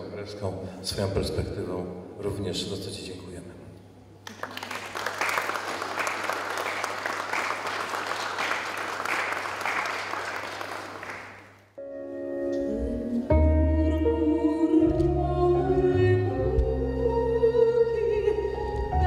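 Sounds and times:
audience applauding: 0:04.2 - 0:11.6
music: 0:11.8 - 0:19.0.

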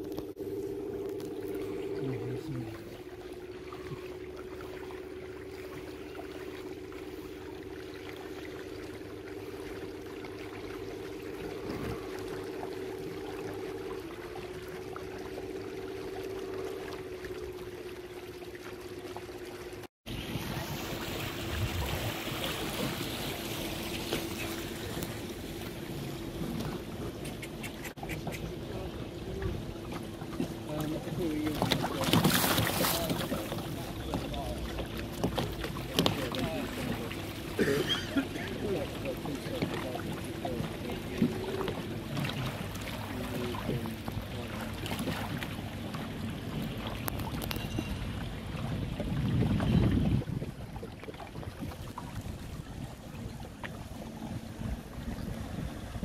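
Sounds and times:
boat motor humming: 0:00.0 - 0:56.0
water lapping along hull: 0:00.0 - 0:56.0.

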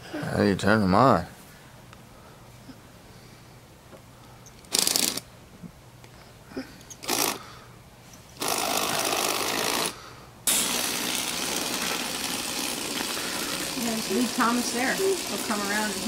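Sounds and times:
toy train motor and gears: 0:04.5 - 0:05.2, 0:06.9 - 0:07.4, 0:08.4 - 0:16.0.

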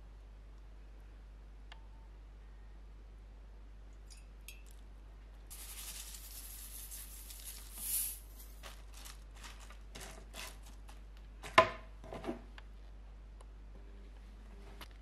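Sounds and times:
soft hiss: 0:03.8 - 0:09.6
spoon tossing salad in plastic bowl: 0:05.5 - 0:11.0.

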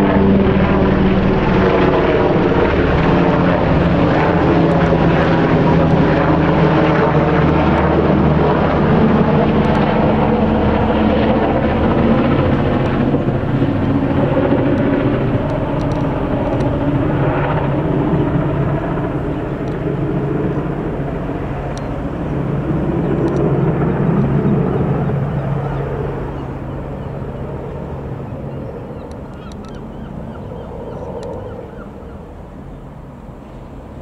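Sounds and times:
helicopter flying overhead: 0:00.0 - 0:34.0.

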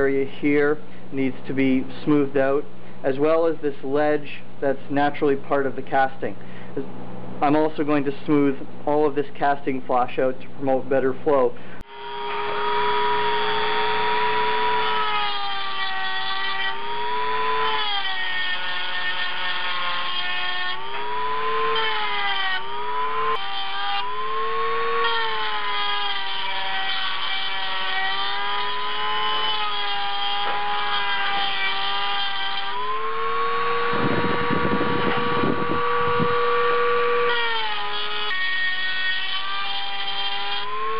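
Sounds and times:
electric rotary tool grinding metal: 0:11.8 - 0:40.9.

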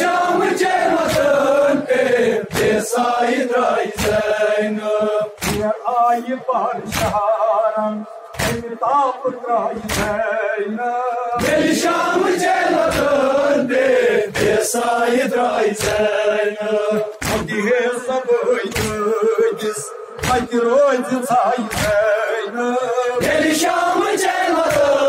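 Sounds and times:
men chanting in unison: 0:00.0 - 0:25.0
hands beating chests: 0:03.9 - 0:04.4, 0:05.4 - 0:05.7, 0:06.9 - 0:07.3, 0:08.4 - 0:08.7, 0:09.8 - 0:10.2, 0:17.2 - 0:17.6, 0:18.7 - 0:19.0, 0:20.2 - 0:20.6, 0:21.7 - 0:22.1.

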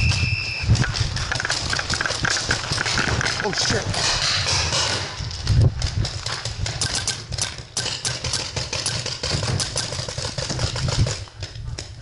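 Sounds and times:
paintball markers firing: 0:05.9 - 0:12.0.

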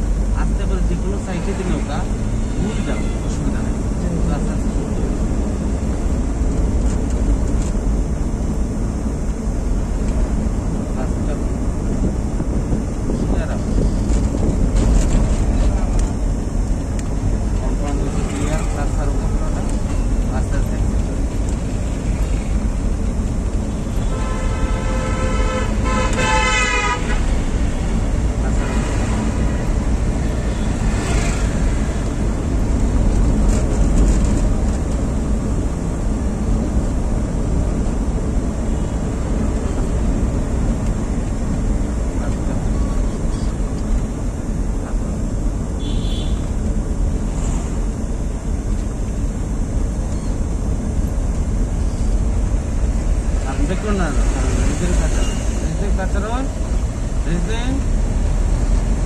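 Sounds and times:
car engine and road rumble: 0:00.0 - 0:59.0
vehicle horn: 0:23.7 - 0:27.5, 0:28.4 - 0:29.6, 0:45.8 - 0:46.5.

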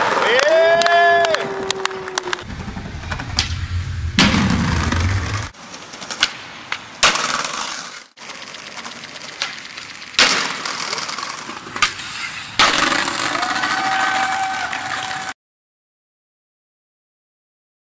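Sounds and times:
skateboard wheels rolling on pavement: 0:00.0 - 0:15.3
skateboard slamming down on landings: 0:12.6 - 0:13.6.

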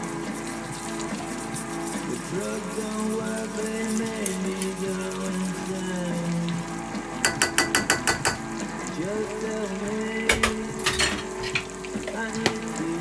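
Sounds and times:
gravy bubbling: 0:00.0 - 0:07.5
metal utensil tapping a pan: 0:07.2 - 0:08.5, 0:10.3 - 0:11.8.

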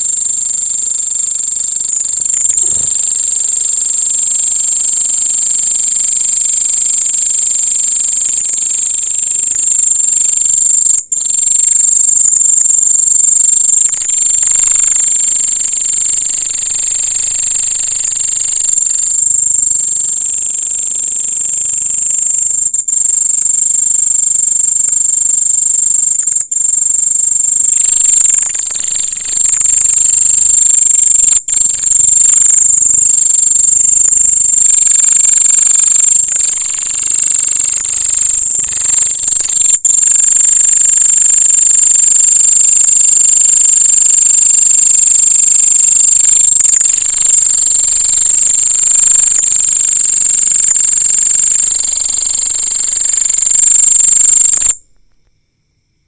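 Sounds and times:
cricket trilling: 0:00.0 - 0:56.0.

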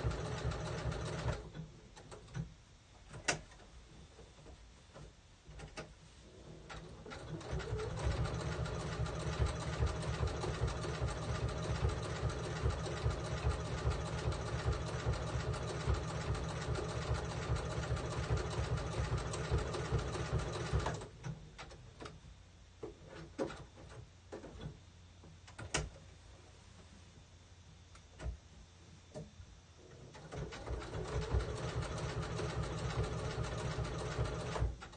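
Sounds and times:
sewing machine running fast: 0:00.0 - 0:01.4, 0:07.2 - 0:21.0, 0:30.5 - 0:34.7.

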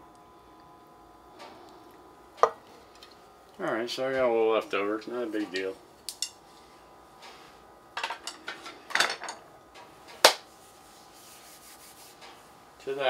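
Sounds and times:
utensils clinking on dishes: 0:08.0 - 0:09.4.

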